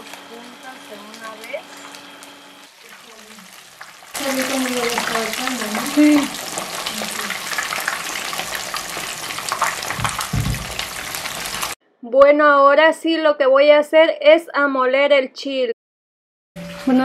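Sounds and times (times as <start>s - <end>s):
fish sizzling in hot oil: 0.0s - 11.8s.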